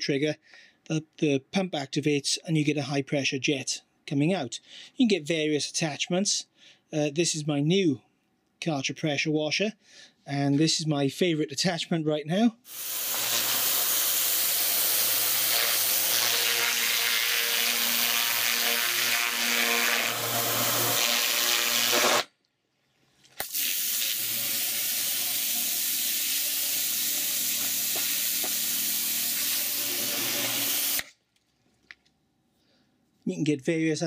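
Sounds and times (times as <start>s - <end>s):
pressure washer jet hissing: 12.7s - 19.1s, 23.4s - 31.1s.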